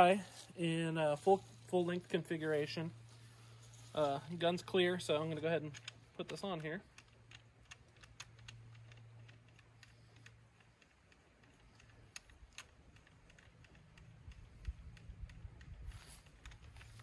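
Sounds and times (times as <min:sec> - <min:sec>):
suppressor threading clicks: 0:04.6 - 0:17.0.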